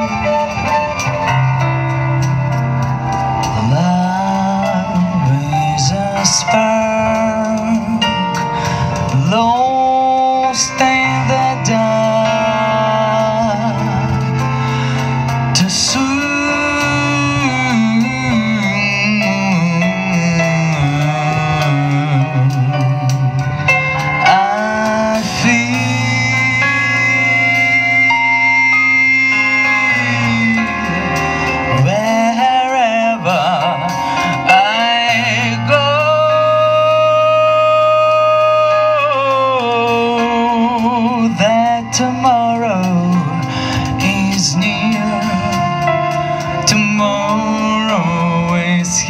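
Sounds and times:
violin melody with vibrato: 0.0 - 4.0
bass guitar: 0.0 - 49.0
drums: 0.0 - 49.0
keyboard: 0.0 - 49.0
live jazz band playing: 0.0 - 49.0.

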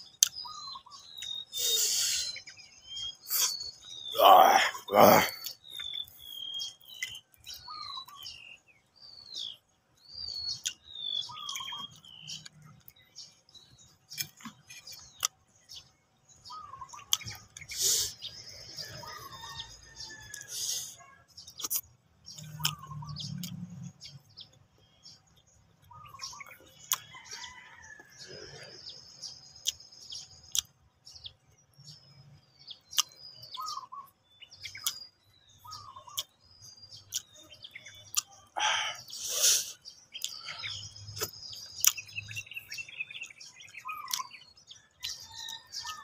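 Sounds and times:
wet chewing and lip smacks: 0.0 - 1.5, 10.5 - 13.1, 14.0 - 15.5, 17.0 - 17.8, 21.5 - 23.8, 25.3 - 27.2, 29.6 - 30.8, 32.9 - 33.2, 34.7 - 35.1, 36.0 - 36.4, 37.1 - 38.5, 40.1 - 42.2, 43.2 - 46.0
birds chirping: 0.0 - 46.0.

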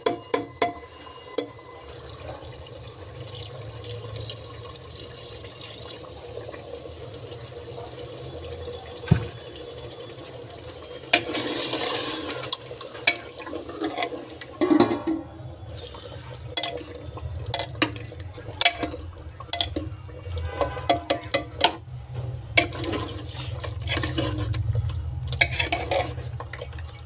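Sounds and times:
spoon clattering against pot: 0.0 - 1.5, 13.8 - 15.3, 17.5 - 21.8
food sizzling in a pot: 0.0 - 19.9, 21.1 - 26.3.

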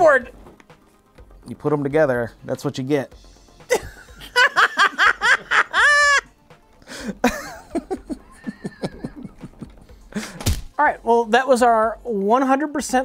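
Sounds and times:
man laughing: 3.7 - 6.3, 6.9 - 10.4.

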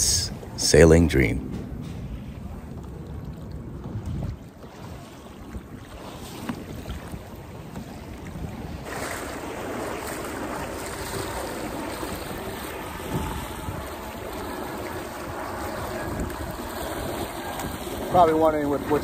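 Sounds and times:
water rushing along a boat hull: 0.0 - 19.0
wind on the microphone: 0.0 - 19.0.

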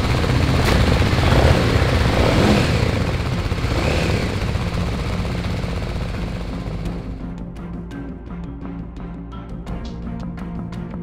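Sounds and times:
motorcycle engines rumbling: 0.0 - 7.2.

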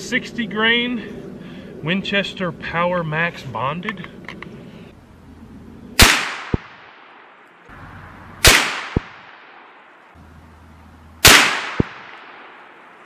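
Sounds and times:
rifle shots: 6.0 - 7.3, 8.4 - 9.8, 11.2 - 12.9.

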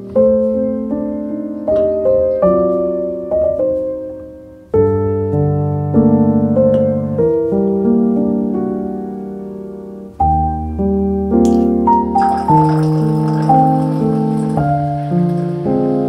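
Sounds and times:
slow piano chords: 0.0 - 16.0
faint hiss: 11.3 - 16.0.

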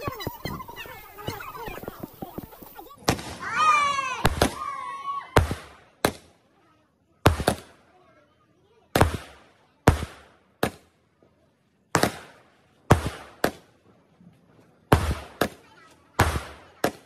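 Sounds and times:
fireworks bangs with echo: 0.0 - 4.7, 5.3 - 6.5, 7.2 - 7.9, 8.9 - 11.0, 11.9 - 13.9, 14.8 - 17.0.

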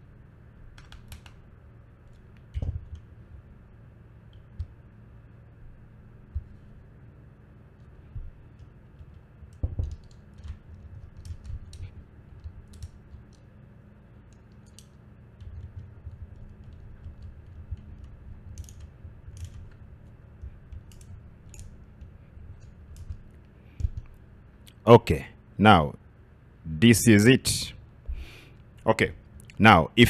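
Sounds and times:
wires clicking and rustling: 0.7 - 3.6, 7.7 - 13.6, 14.2 - 24.8.

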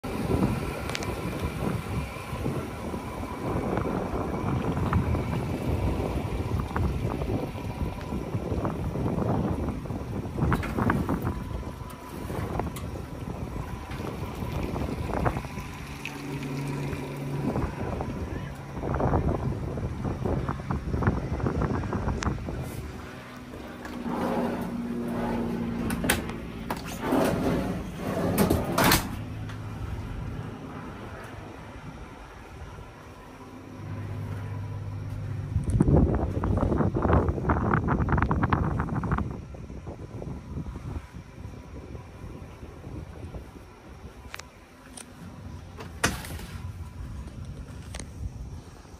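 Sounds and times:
wind buffeting microphone: 0.0 - 48.9
drawer sliding open and shut: 23.8 - 29.2.

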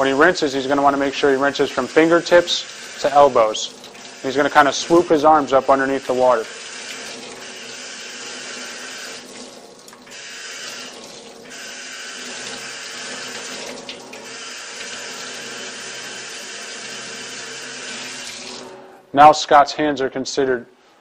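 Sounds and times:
water splashing into steel sink: 9.1 - 11.5, 12.4 - 15.0.

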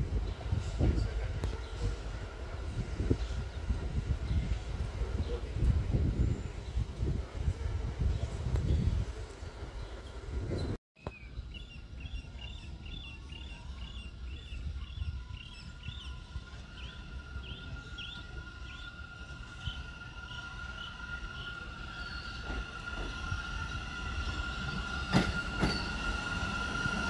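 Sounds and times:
rails ringing from approaching train: 12.2 - 27.0.

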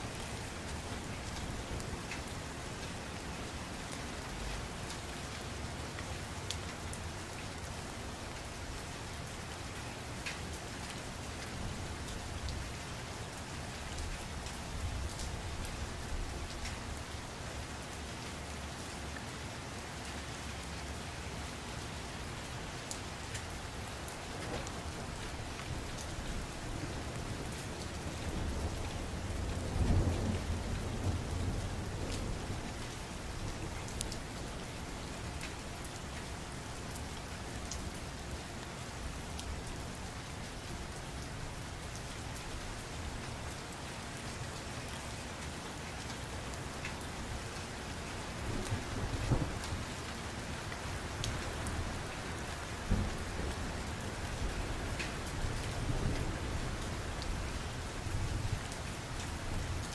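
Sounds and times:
steady rain falling: 0.0 - 59.9
low rumble of thunder: 24.4 - 35.1, 48.4 - 58.7.

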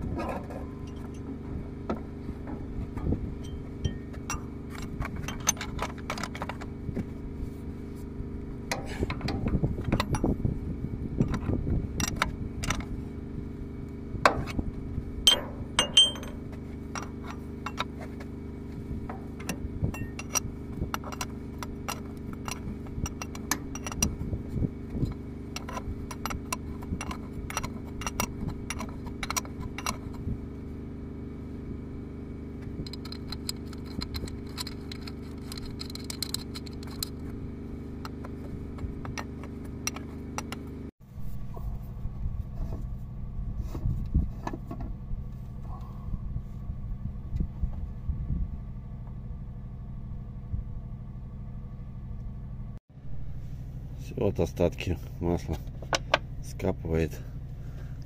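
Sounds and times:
steady low hum: 0.0 - 58.0
metal wrench clinking on fittings: 15.3 - 17.9, 19.9 - 24.2.

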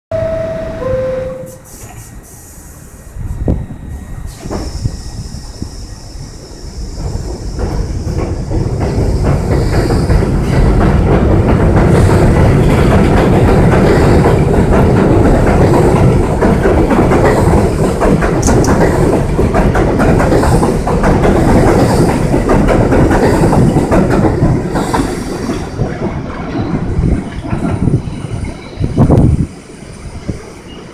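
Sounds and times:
subway train wheels clattering: 0.1 - 30.9.

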